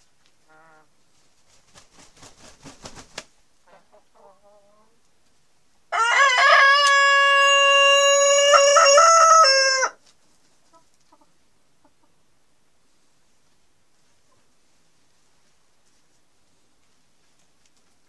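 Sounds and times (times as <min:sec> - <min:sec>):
rooster crowing: 0:05.9 - 0:10.0.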